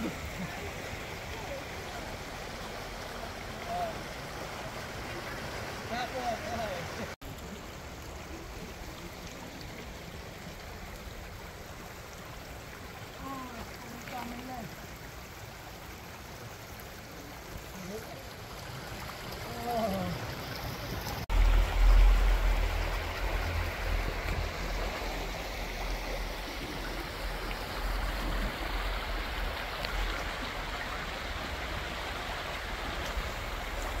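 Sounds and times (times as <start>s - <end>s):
stream rushing over stones: 0.0s - 34.0s
low rumble: 21.3s - 30.2s.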